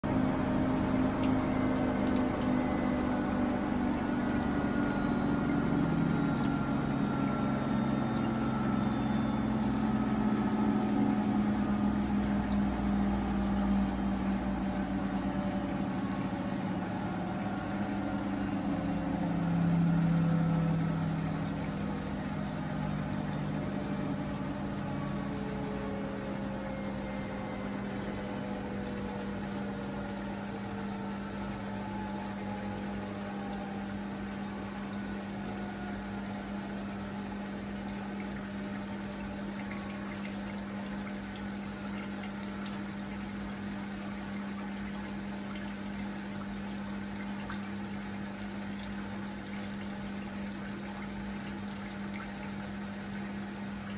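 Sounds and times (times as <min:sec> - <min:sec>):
washing machine spinning down: 0:00.0 - 0:53.9.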